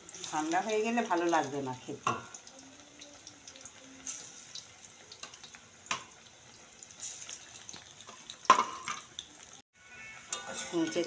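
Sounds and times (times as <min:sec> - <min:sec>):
frying oil sizzling: 0:00.0 - 0:11.0.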